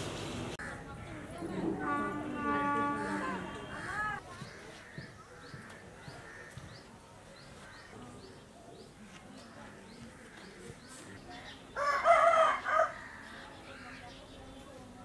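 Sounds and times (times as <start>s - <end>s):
rooster crowing: 11.8s - 13.0s.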